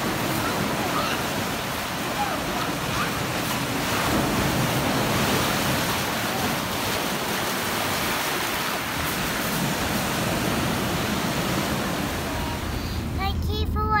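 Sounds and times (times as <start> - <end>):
sea waves breaking over rocks: 0.0 - 13.2.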